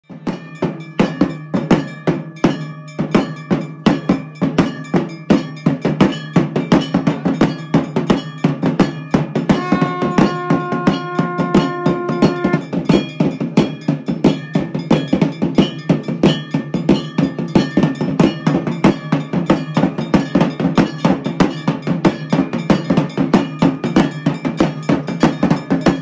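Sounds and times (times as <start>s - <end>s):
large drum beats: 0.0s - 26.0s
metal bells clanging: 0.1s - 26.0s
steady held note: 9.5s - 12.7s.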